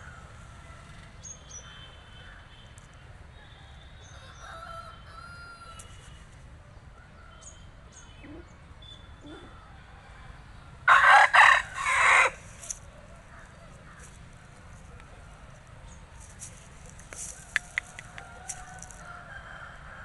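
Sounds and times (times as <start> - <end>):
rooster crowing: 3.4 - 6.0, 10.9 - 12.4, 17.4 - 20.0.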